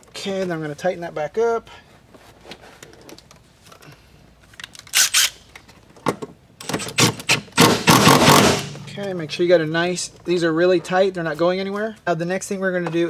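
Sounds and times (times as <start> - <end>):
impact driver bursts: 6.6 - 8.9.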